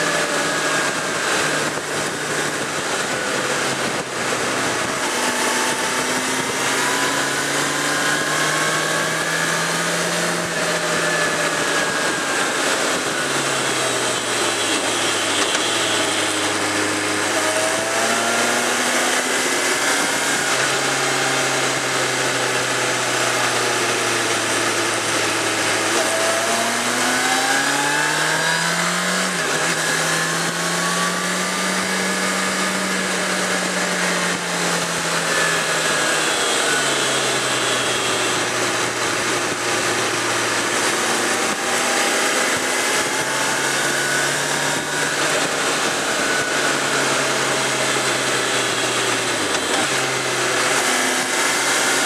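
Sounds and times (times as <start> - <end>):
motorcycle engine running: 0.0 - 52.0
wind rush: 0.3 - 23.2.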